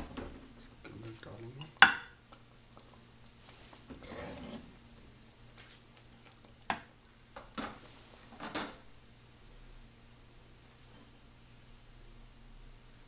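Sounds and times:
ladle clinking on pot: 1.6 - 2.2
curry pouring with scraping slop: 2.4 - 8.3.

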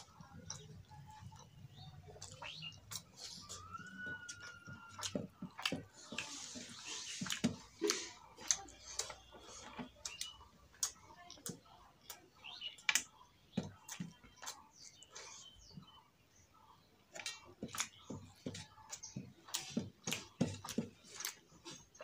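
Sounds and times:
wet chewing mouth smacks: 0.1 - 11.5.

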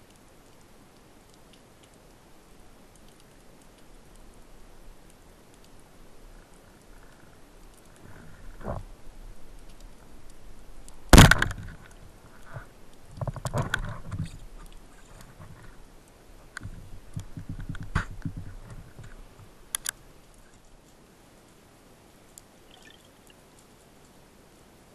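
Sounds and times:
speargun firing underwater: 11.1 - 11.8.

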